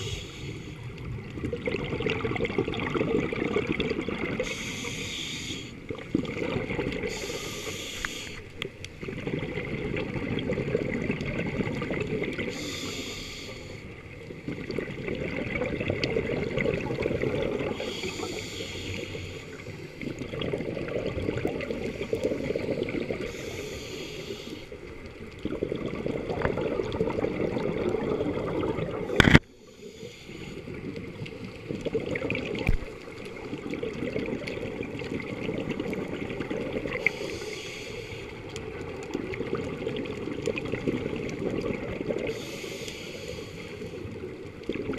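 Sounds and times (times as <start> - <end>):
regulator inhale hiss: 0.0 - 1.0, 4.4 - 5.8, 7.0 - 8.6, 12.5 - 14.0, 17.7 - 20.2, 21.8 - 24.9, 29.1 - 30.8, 36.9 - 38.6, 42.2 - 44.2
exhaled air bubbling: 0.0 - 44.9.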